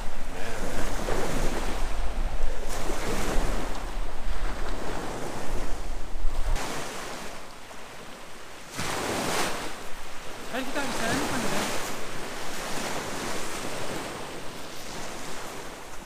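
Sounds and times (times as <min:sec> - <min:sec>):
wind on microphone: 0:00.0 - 0:07.8
sea waves washing on shore: 0:00.0 - 0:16.0.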